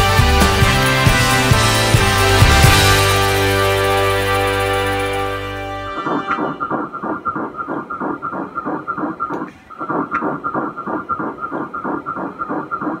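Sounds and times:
fetal heartbeat on doppler: 6.4 - 13.0.

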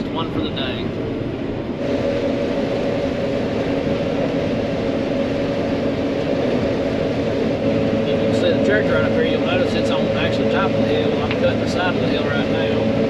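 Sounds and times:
combine harvester drone: 0.0 - 13.0.

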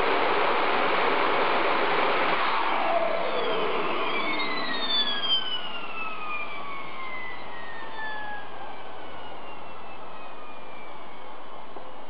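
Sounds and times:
gas turbine air rush: 0.0 - 4.9
turbine whine falling in pitch: 0.0 - 12.0.

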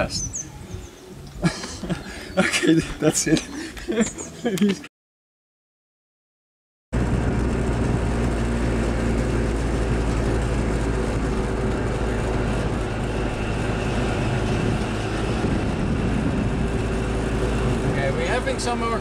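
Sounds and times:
two-stroke engine running: 7.0 - 19.0.

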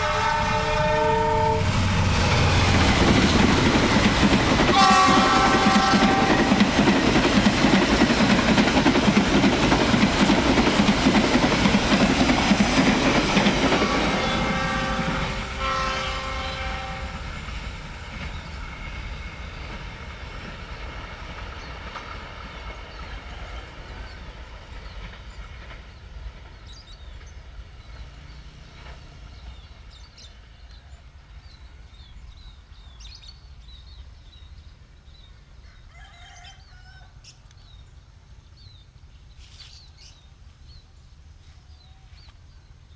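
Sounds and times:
distant locomotive horn: 0.0 - 2.6, 4.6 - 6.8, 13.4 - 17.4
train wheels clattering: 1.8 - 15.6.

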